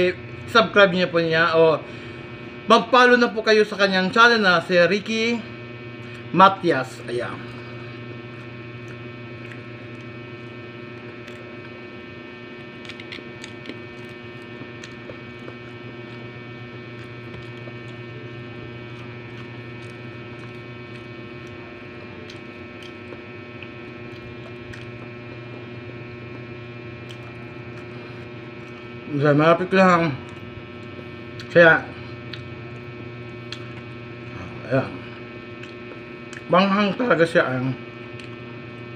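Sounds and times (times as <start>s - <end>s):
electrical hum: 0.0s - 38.9s
chewing mouth clicks: 8.3s - 11.8s, 12.7s - 18.1s, 18.8s - 21.6s, 22.2s - 25.3s, 27.0s - 28.9s, 32.2s - 34.0s, 35.4s - 36.5s, 38.0s - 38.8s.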